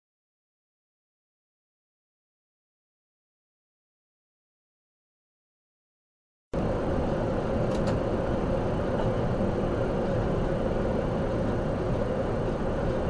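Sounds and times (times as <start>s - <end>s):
vehicle road and engine noise: 6.6s - 13.0s.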